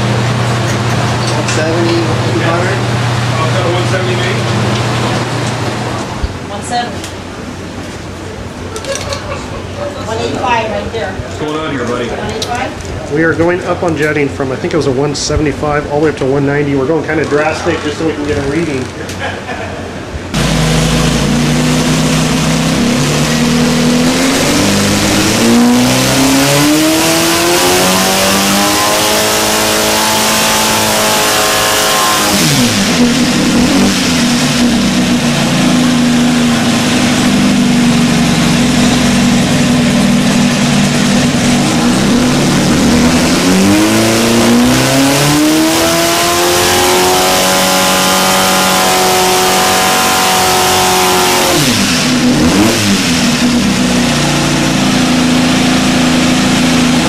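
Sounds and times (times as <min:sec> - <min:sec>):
engine revving under load: 0:20.3 - 0:57.0.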